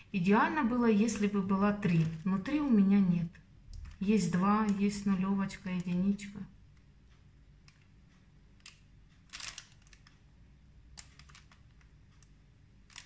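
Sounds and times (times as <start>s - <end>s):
low steady hum: 0.0s - 13.0s
piping bag crackles and clicks: 1.0s - 6.5s, 9.2s - 10.2s, 10.9s - 13.0s.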